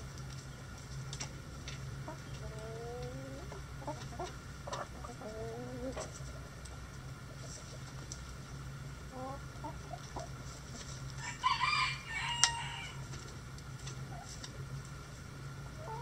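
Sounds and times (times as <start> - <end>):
low steady hum: 0.0 - 16.0
hens clucking: 1.7 - 8.4, 9.0 - 13.2, 13.8 - 14.7, 15.6 - 16.0.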